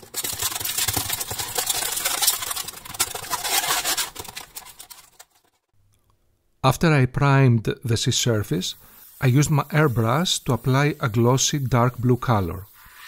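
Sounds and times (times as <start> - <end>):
aluminium foil crinkling: 0.0 - 5.7.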